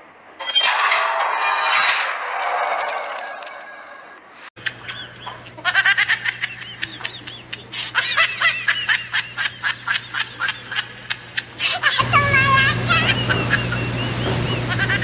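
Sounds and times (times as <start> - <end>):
high-pitched giggling: 4.6 - 15.0.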